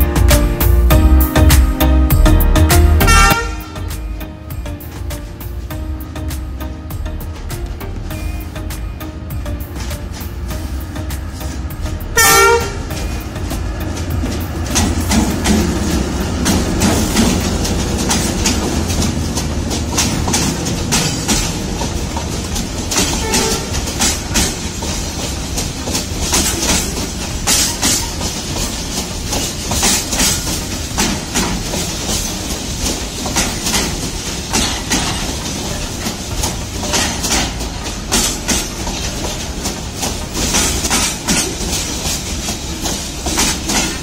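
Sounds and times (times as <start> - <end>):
wheels clicking over rail joints: 3.1 - 44.0
toy train rolling on track: 12.2 - 44.0.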